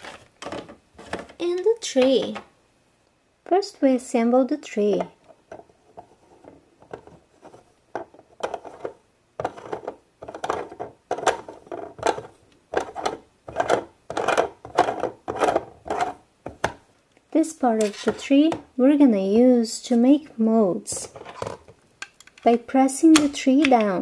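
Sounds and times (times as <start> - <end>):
plastic scraping on plastic: 0.0 - 2.4, 5.5 - 16.8, 17.8 - 18.7, 20.9 - 21.8.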